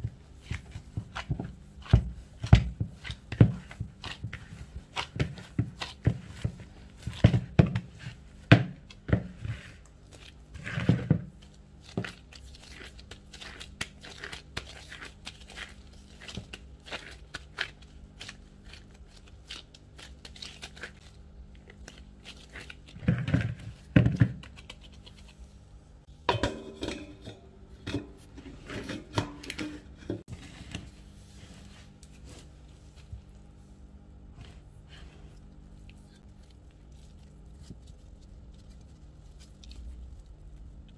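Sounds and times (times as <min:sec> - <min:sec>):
faint steady hum: 0:00.0 - 0:40.9
gloved hands handling dough: 0:00.0 - 0:40.9
knocks and scrapes: 0:26.2 - 0:33.2.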